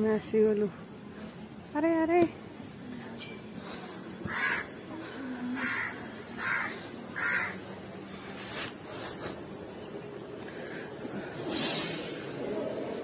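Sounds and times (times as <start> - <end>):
crow cawing: 4.2 - 4.8, 5.6 - 7.6.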